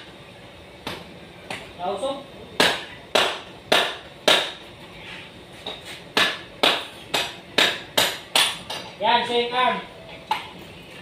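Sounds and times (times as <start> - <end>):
hammer striking metal: 2.6 - 4.6, 6.2 - 8.9.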